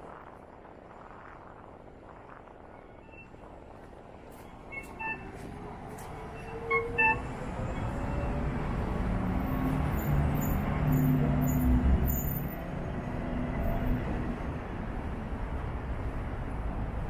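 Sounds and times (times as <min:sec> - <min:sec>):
street traffic: 0:02.2 - 0:17.0.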